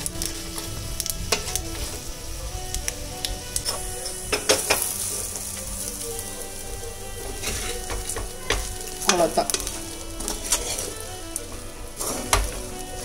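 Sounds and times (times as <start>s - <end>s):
food sizzling in hot oil: 0.0s - 13.0s
metal spoon scraping pan: 7.2s - 13.0s.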